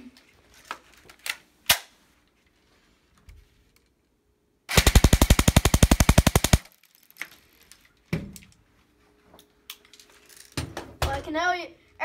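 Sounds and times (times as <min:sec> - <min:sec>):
airsoft rifle automatic burst: 0:04.7 - 0:06.7.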